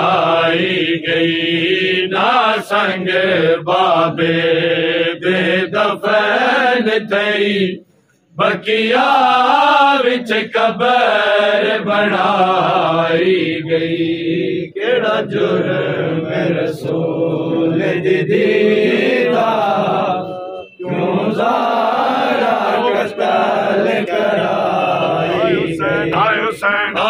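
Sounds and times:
men chanting mournfully: 0:08.4 - 0:27.0.

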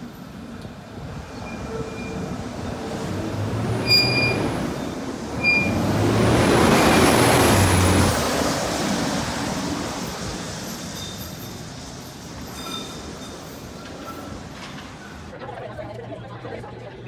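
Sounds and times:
bus driving past: 0:01.2 - 0:12.4.

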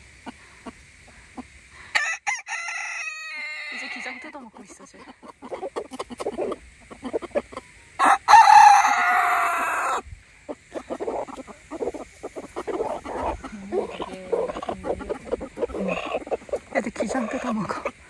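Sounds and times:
chickens clucking: 0:00.0 - 0:18.0
rooster crowing: 0:01.9 - 0:04.2, 0:08.0 - 0:10.0
chickens pecking and tearing: 0:05.3 - 0:07.6, 0:10.8 - 0:17.9.

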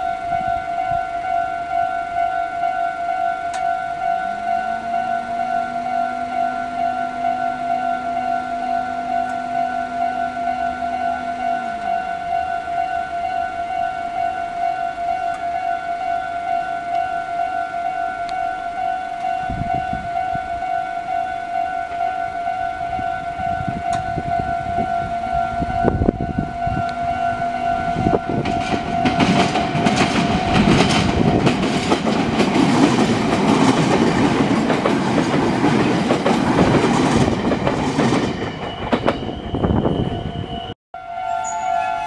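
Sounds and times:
level crossing bell ringing: 0:00.0 - 0:31.5, 0:41.0 - 0:42.0
train wheels on rails: 0:25.6 - 0:40.7.

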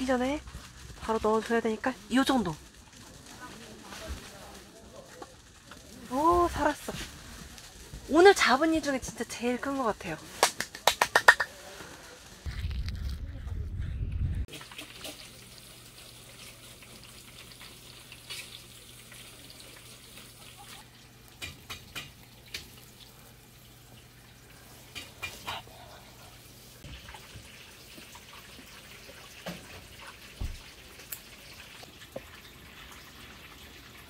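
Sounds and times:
water splashing and dripping: 0:14.5 - 0:25.4, 0:26.8 - 0:34.0.

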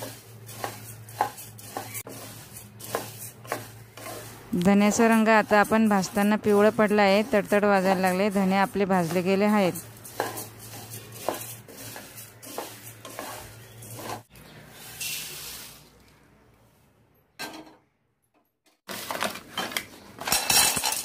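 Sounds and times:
spices pouring into metal bowl: 0:00.0 - 0:14.1
spatula scraping seeds in wok: 0:00.0 - 0:16.0.

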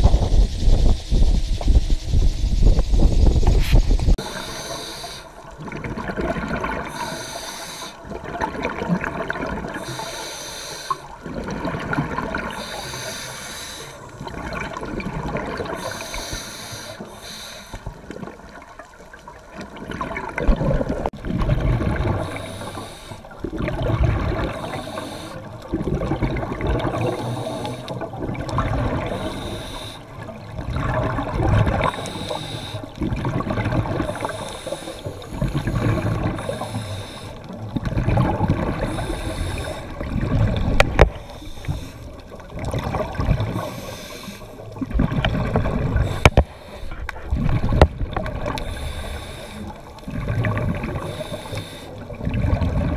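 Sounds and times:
wind buffeting microphone: 0:00.0 - 0:04.2
sea water splashing along hull: 0:00.0 - 0:52.9.

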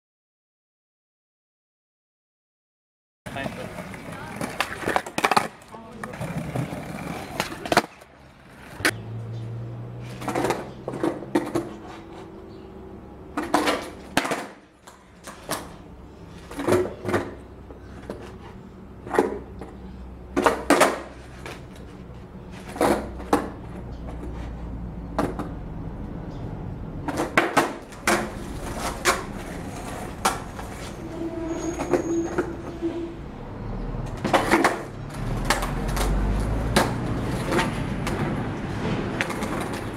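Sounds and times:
skateboard wheels rolling: 0:03.3 - 0:09.0, 0:10.0 - 0:12.6, 0:13.3 - 0:25.6, 0:27.0 - 0:33.2, 0:34.0 - 0:39.9
skateboard deck clacking: 0:03.4 - 0:09.0, 0:13.3 - 0:15.8, 0:19.0 - 0:24.5, 0:27.0 - 0:30.9, 0:34.1 - 0:38.4, 0:39.0 - 0:39.9.

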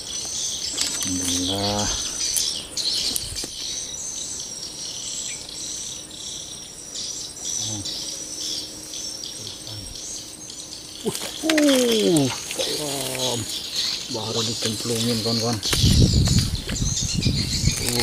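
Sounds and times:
insects chirping: 0:00.0 - 0:18.0.

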